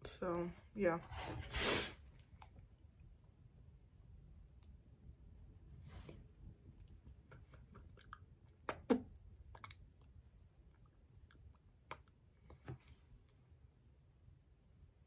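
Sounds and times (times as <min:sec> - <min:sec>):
lip smacks and clicks: 0:06.8 - 0:12.7.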